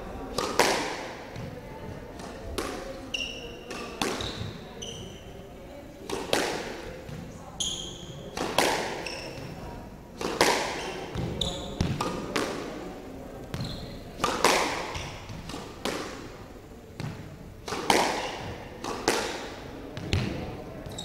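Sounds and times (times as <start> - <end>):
squash ball smacks: 0.3 - 1.5, 3.7 - 4.6, 6.1 - 7.2, 8.3 - 9.5, 10.2 - 12.7, 14.2 - 16.3, 17.0 - 20.5
shoes squeaking on wooden floor: 4.2 - 5.2, 13.5 - 14.0.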